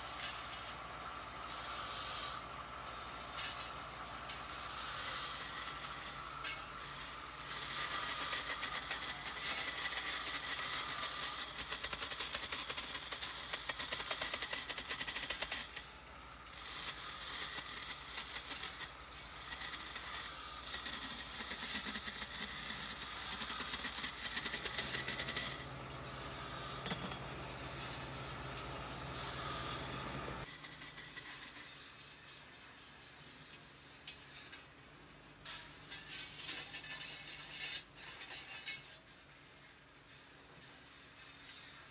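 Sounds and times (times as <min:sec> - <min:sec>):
belt grinder grinding steel: 0:16.5 - 0:31.8.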